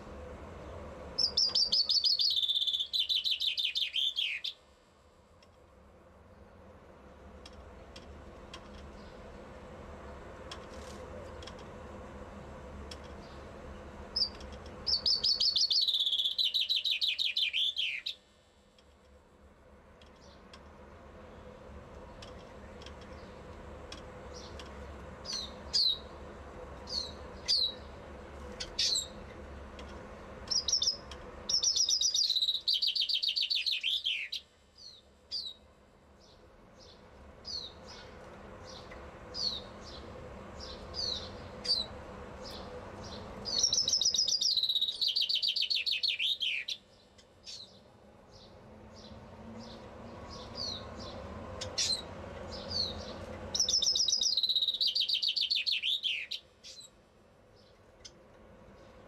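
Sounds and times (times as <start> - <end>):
sharp downward bird calls: 1.2 - 4.6, 14.9 - 18.2, 30.5 - 34.5, 43.5 - 46.8, 53.5 - 56.8.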